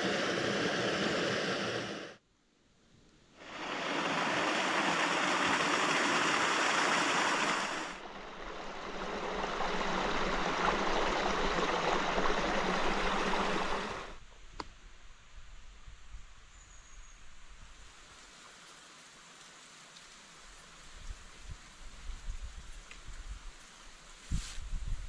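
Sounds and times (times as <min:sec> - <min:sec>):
stream rushing over rocks: 0:03.4 - 0:14.2.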